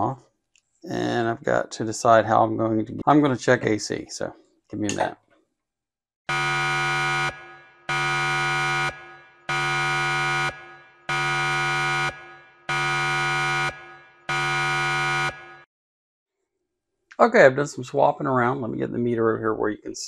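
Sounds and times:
harsh electronic warning buzzes: 6.3s - 15.7s.

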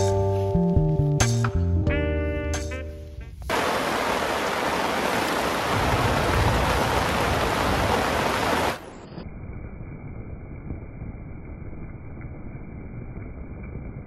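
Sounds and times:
heavy rain falling: 3.4s - 9.8s.

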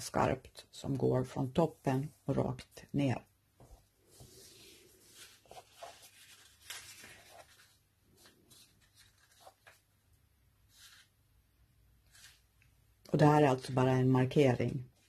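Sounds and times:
paper rustling and folding: 3.6s - 11.4s, 12.0s - 12.6s.

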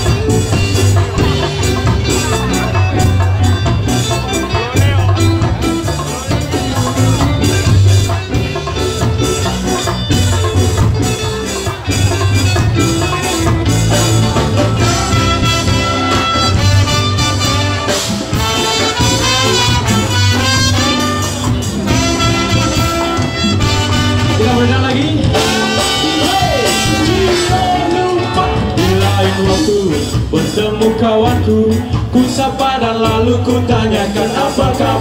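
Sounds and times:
ska band playing live: 0.0s - 35.0s
horn section: 11.9s - 30.0s.

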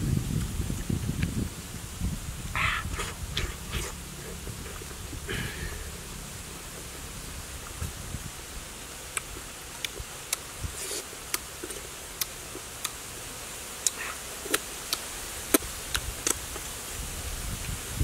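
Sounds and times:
steady hiss: 0.0s - 18.0s
wet lip smacks: 2.6s - 4.0s, 9.1s - 11.4s, 12.2s - 13.0s, 13.8s - 16.4s.

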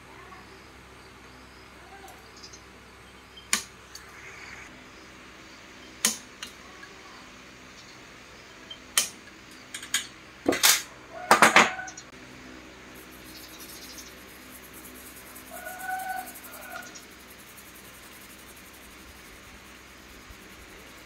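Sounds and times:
toothbrush scrubbing a board: 13.2s - 19.4s.

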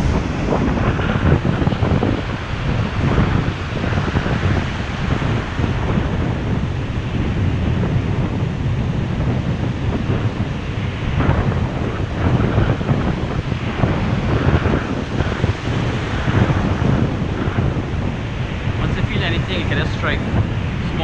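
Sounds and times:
surf breaking on beach: 0.0s - 7.6s
wind buffeting microphone: 0.0s - 21.0s.

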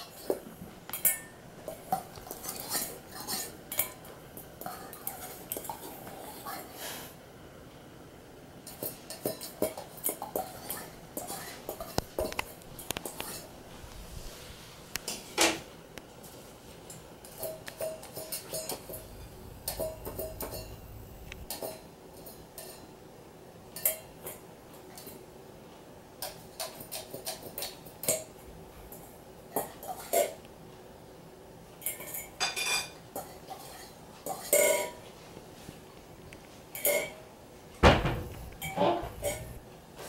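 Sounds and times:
metal plate clattering: 18.2s - 21.1s, 37.8s - 39.6s.

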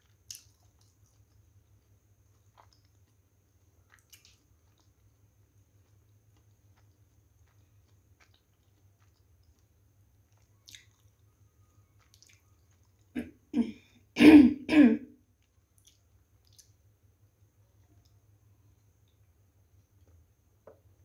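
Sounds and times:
woman coughing: 13.2s - 15.1s.

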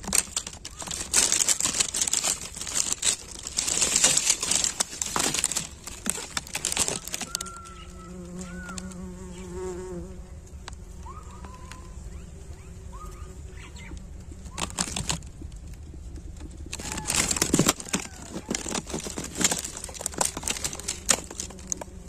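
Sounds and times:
bees humming: 0.0s - 22.0s
dry leaves and twigs crackling: 0.0s - 22.0s
bird chirping: 6.9s - 9.8s, 11.0s - 17.1s.

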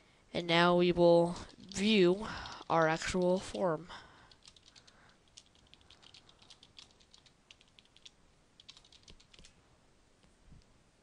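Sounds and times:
keyboard typing: 4.3s - 9.5s.

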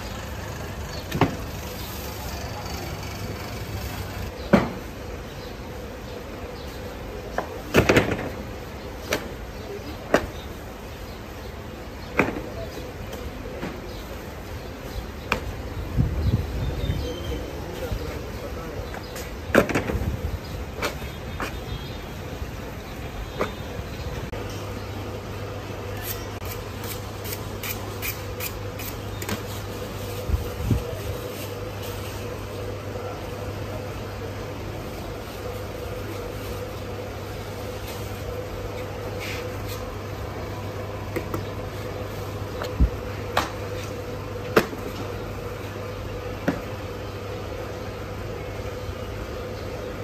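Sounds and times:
electric fan hum: 0.0s - 7.2s, 14.0s - 50.0s
knives scraping blade against blade: 26.0s - 29.0s.

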